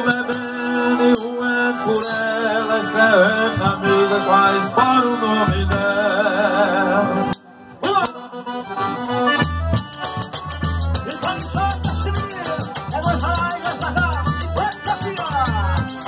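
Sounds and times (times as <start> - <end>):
accordion melody: 0.0 - 16.0
bass: 1.8 - 16.0
ticking shaker percussion: 9.4 - 16.0.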